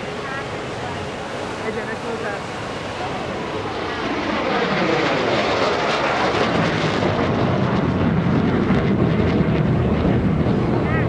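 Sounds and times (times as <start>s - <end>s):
jet afterburner rumble: 0.0s - 11.0s
jet fighter passing with whine: 0.0s - 11.0s.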